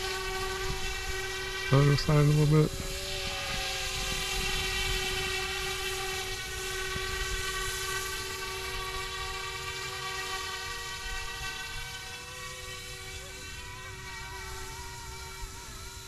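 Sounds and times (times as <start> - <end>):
rc helicopter whine: 0.0 - 16.0.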